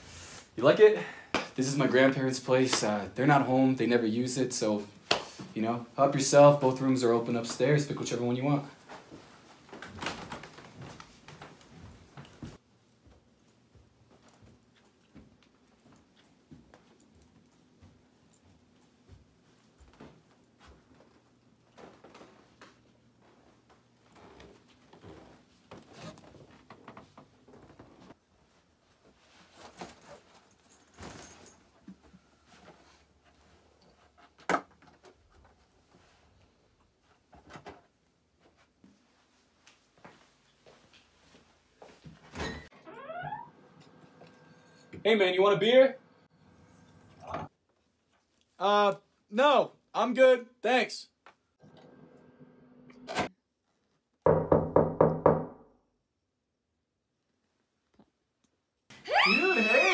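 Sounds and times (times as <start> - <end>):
knocking on a door: 54.3 - 55.6.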